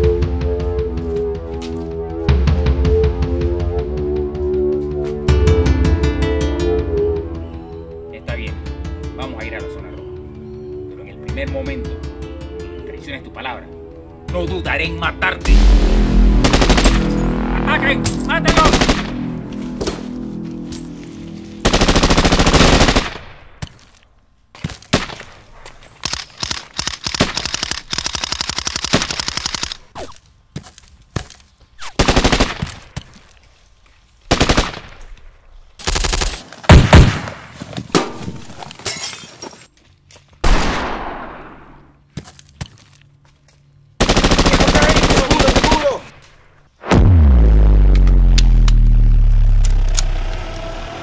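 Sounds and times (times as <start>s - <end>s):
single gunshots: 40.4s - 41.8s
automatic gunfire bursts: 44.0s - 46.0s.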